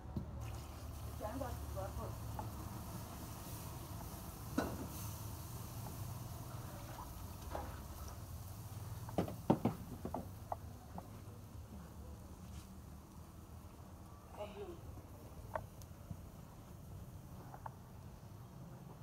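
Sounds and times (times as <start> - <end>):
wooden spoon knocking on pot: 9.1 - 10.3.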